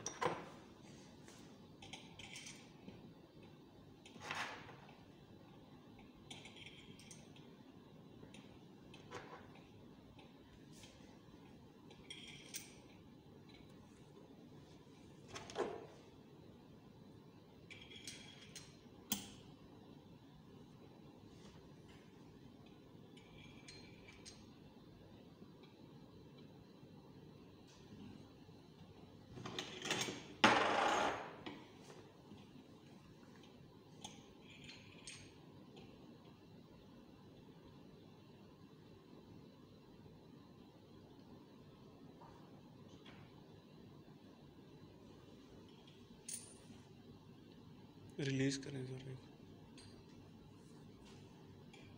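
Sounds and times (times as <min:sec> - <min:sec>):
small metal clinks: 0:01.8 - 0:02.8, 0:06.0 - 0:07.5, 0:11.9 - 0:13.7, 0:23.1 - 0:24.5, 0:34.0 - 0:35.4, 0:45.7 - 0:46.8.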